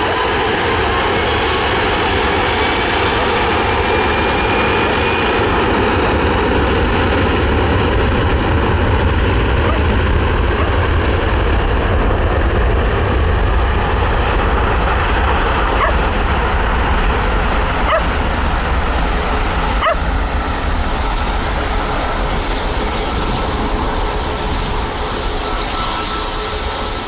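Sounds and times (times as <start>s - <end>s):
airliner engines running: 0.0s - 27.0s.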